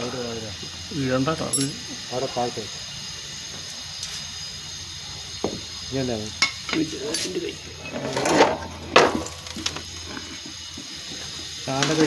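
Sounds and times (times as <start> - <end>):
metal tools clinking and scraping: 1.5 - 2.0, 6.4 - 10.6.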